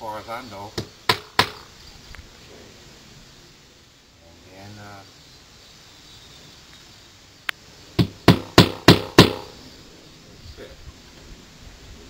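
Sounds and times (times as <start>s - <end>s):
hammer striking tack: 0.8s - 1.6s, 8.0s - 9.5s.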